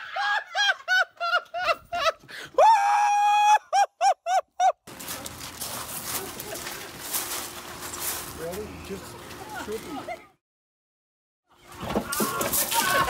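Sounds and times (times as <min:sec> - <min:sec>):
high-pitched shrieking laughter: 0:00.0 - 0:04.8, 0:12.0 - 0:13.0
faint outdoor background noise: 0:00.0 - 0:10.4.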